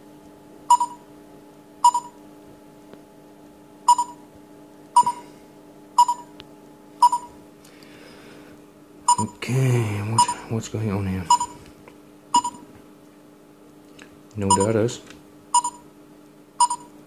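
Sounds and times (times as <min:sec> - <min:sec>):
faint steady hum: 0:00.0 - 0:17.0
short electronic beeps: 0:00.7 - 0:01.0, 0:01.8 - 0:02.2, 0:03.9 - 0:04.2, 0:05.0 - 0:05.2, 0:06.0 - 0:06.3, 0:07.0 - 0:07.3, 0:09.1 - 0:09.4, 0:11.3 - 0:11.6, 0:12.4 - 0:12.6, 0:14.5 - 0:14.8, 0:15.6 - 0:15.8, 0:16.6 - 0:16.9.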